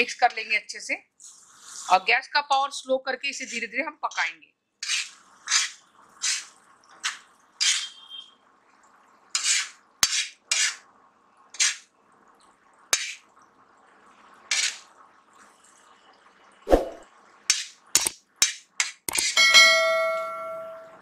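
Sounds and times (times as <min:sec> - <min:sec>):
spoon scraping on iron pan: 0:04.8 - 0:08.1, 0:09.4 - 0:10.8, 0:11.6 - 0:11.9, 0:13.0 - 0:13.2, 0:14.5 - 0:14.9, 0:16.8 - 0:20.1
sharp clicks: 0:18.0 - 0:18.2, 0:19.0 - 0:19.4.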